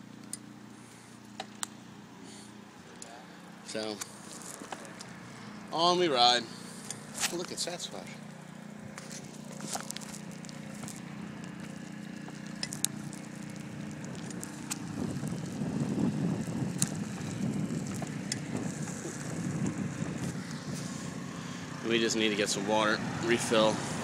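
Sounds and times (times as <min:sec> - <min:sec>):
road noise: 0:00.0 - 0:24.0
bicycle clicks and rattles: 0:03.0 - 0:05.2, 0:06.8 - 0:21.1
wind rumbling on microphone: 0:12.8 - 0:24.0.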